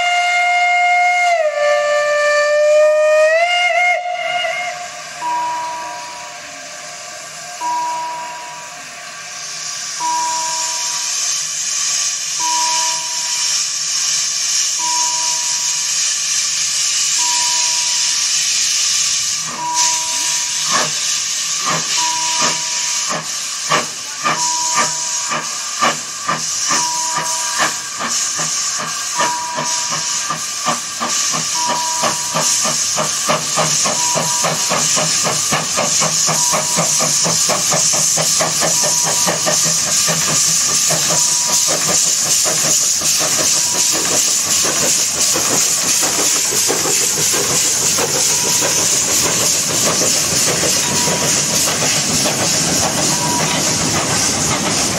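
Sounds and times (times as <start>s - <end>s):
steam locomotive hissing: 0.0s - 54.9s
locomotive exhaust chuffs: 18.0s - 54.9s.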